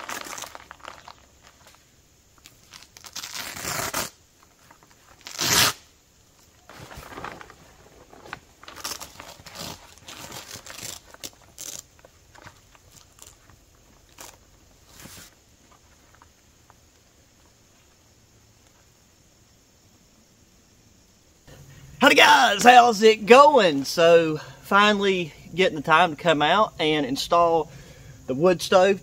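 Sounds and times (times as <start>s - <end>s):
canvas and dry leaves rustling: 0.0s - 18.1s.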